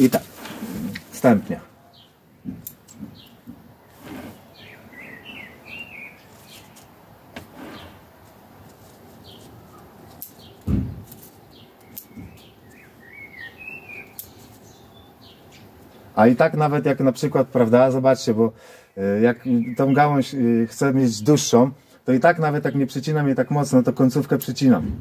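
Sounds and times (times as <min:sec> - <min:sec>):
birds chirping: 0:00.0 - 0:24.8
scissors snipping twigs: 0:08.6 - 0:12.8, 0:14.0 - 0:14.6, 0:24.3 - 0:24.6
dull loud thump: 0:10.6 - 0:11.0.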